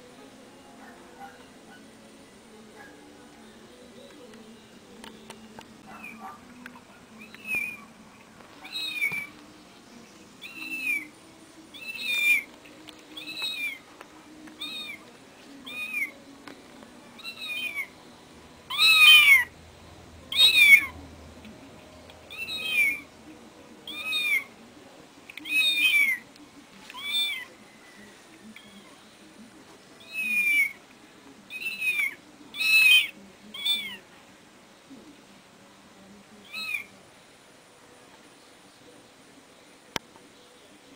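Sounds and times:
cat meowing: 7.2 - 7.9, 8.6 - 9.3, 10.4 - 11.1, 14.6 - 15.0, 15.6 - 16.2, 17.2 - 17.9, 18.7 - 19.5, 22.3 - 23.0, 23.8 - 24.5, 25.4 - 26.2, 26.9 - 27.5, 30.0 - 30.8, 31.5 - 34.0, 36.4 - 36.9.

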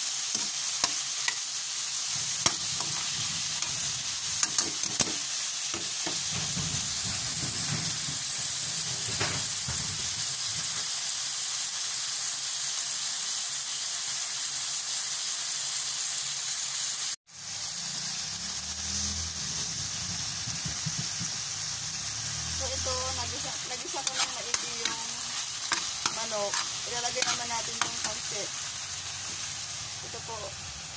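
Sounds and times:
chicken sizzling in hot oil: 0.0 - 30.9
metal spatula knocking on wok: 5.8 - 10.3.

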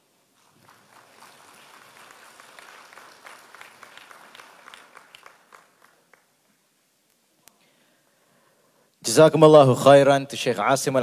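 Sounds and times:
audience applauding faintly: 0.4 - 6.6.

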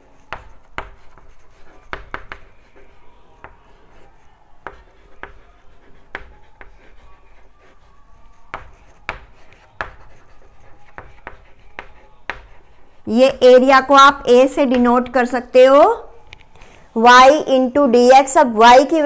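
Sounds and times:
chalk scratching on chalkboard: 0.0 - 13.3
chalk tapping on board: 0.2 - 13.0.

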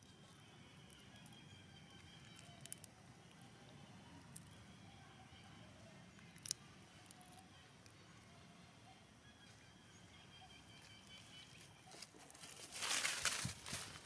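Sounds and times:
faint ambient hiss: 0.0 - 14.0
footsteps rustling dry leaves: 11.4 - 14.0.

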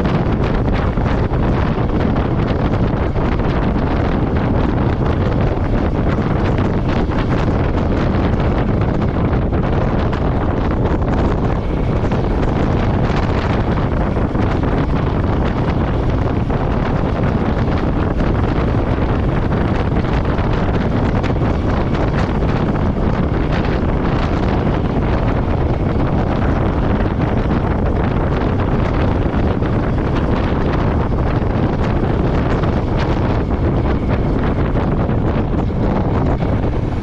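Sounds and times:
motorcycle engine running: 0.0 - 37.0
wind rush on microphone: 0.0 - 37.0.

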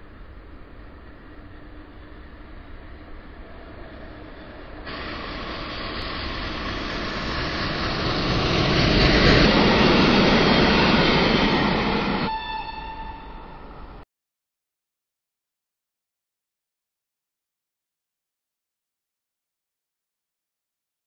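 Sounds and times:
train rail rumble: 0.0 - 14.0.

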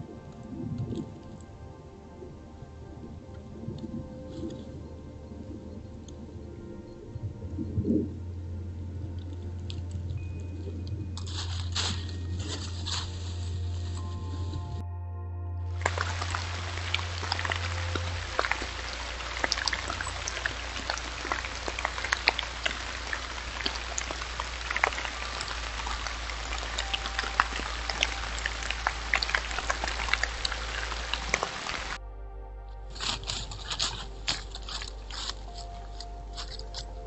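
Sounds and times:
low steady hum: 0.0 - 37.0
rain falling on dry leaves: 9.1 - 14.8, 15.7 - 32.0, 32.9 - 37.0.

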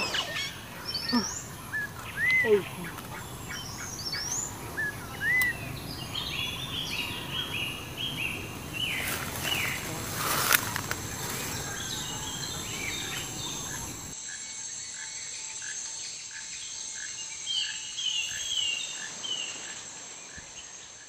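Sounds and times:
birds calling in falling chirps: 0.0 - 14.2
high insect drone: 0.0 - 21.0.

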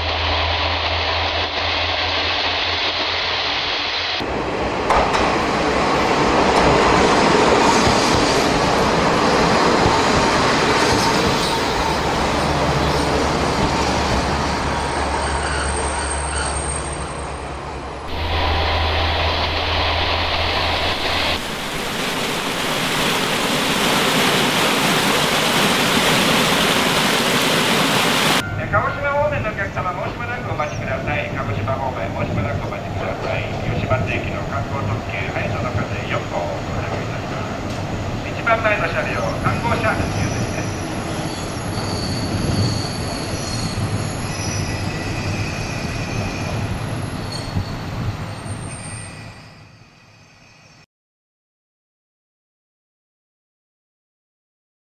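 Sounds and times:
train running with low hum: 0.0 - 50.8
high wheel squeals: 10.9 - 18.8, 39.2 - 50.8
rushing water: 18.1 - 28.4.

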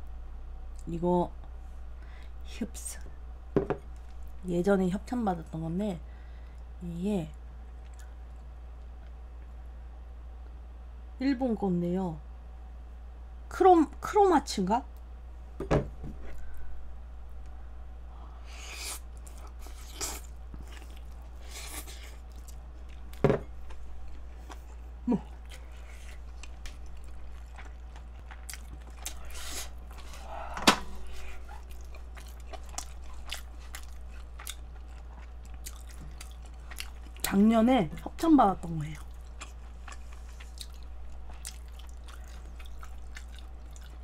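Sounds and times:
low electrical hum: 0.0 - 44.0
person chewing: 18.5 - 37.3, 38.9 - 44.0.

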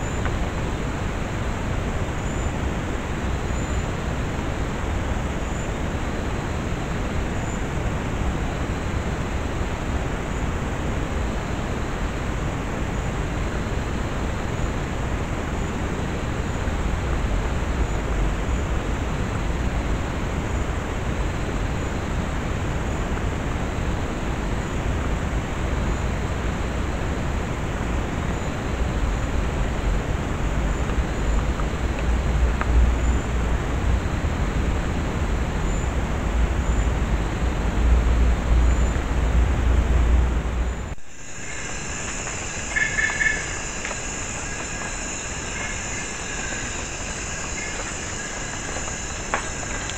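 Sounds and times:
microphone hiss and low rumble: 0.0 - 49.9
faint high chirps: 40.9 - 49.9.

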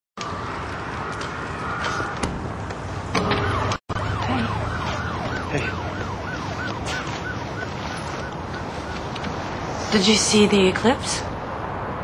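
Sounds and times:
emergency siren wailing: 0.2 - 2.2, 3.1 - 9.7
street noise: 0.2 - 12.0.

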